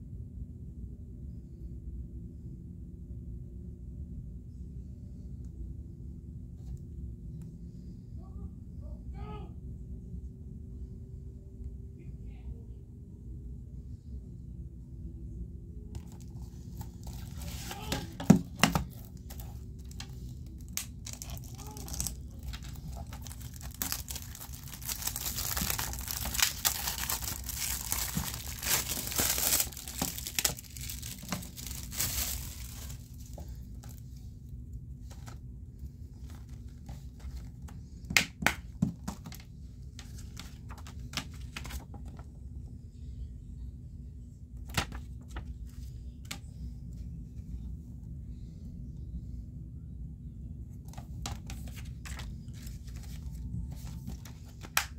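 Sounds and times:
plastic wrap crinkling and tearing: 16.0s - 34.0s.

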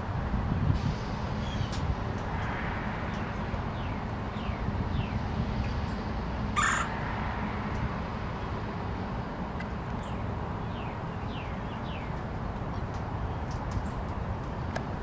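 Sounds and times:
woodpecker harsh call: 6.6s - 6.9s.

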